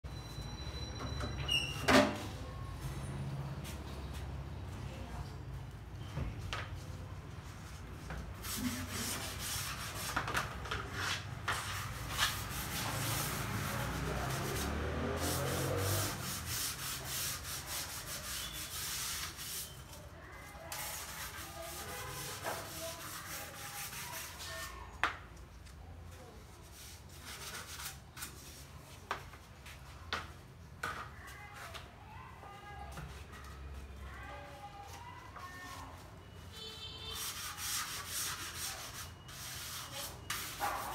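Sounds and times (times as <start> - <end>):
cloth rubbing on wooden planks: 10.9 - 19.8.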